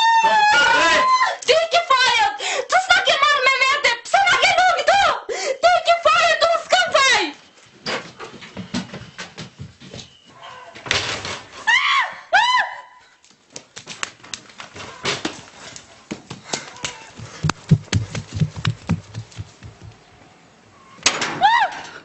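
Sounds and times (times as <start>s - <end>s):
high-pitched screams: 0.0s - 1.4s
quick footfalls: 13.5s - 20.1s
sharp knocks: 17.2s - 19.9s.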